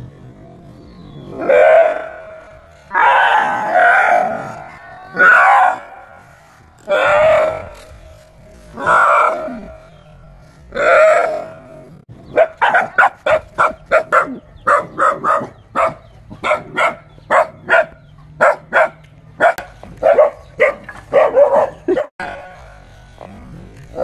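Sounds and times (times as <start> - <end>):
dog barking: 12.3 - 22.5.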